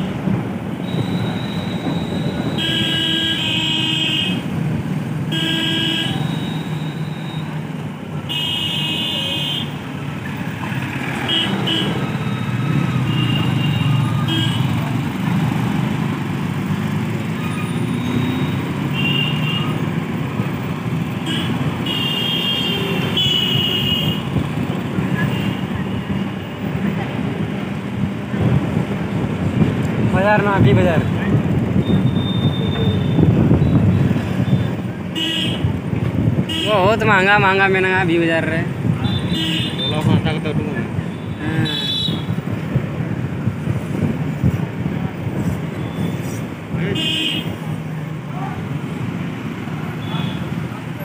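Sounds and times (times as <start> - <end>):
engine and road rumble: 0.0 - 51.0
vehicle horns honking: 0.8 - 4.4, 5.3 - 7.4, 8.3 - 9.8, 11.2 - 14.8, 17.6 - 19.8, 21.2 - 24.4, 31.8 - 35.7, 36.4 - 36.9, 39.0 - 40.2, 41.1 - 42.4, 46.8 - 47.6, 50.0 - 50.6.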